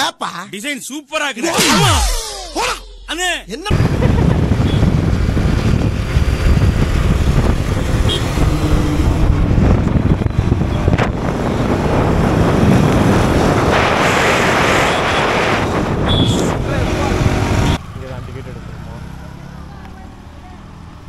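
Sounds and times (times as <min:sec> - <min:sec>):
road noise: 0:03.2 - 0:21.0
motorcycle engine running: 0:03.7 - 0:13.6
wind buffeting microphone: 0:03.7 - 0:17.8.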